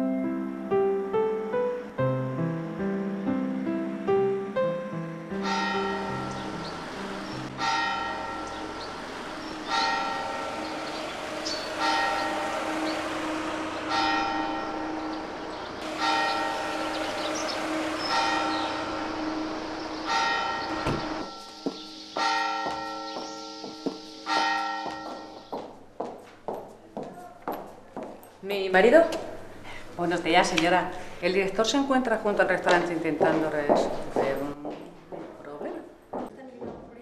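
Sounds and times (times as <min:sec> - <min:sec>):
church bell tolling: 0:05.3 - 0:25.9
high heels clicking on tiles: 0:21.2 - 0:28.4, 0:32.6 - 0:36.9.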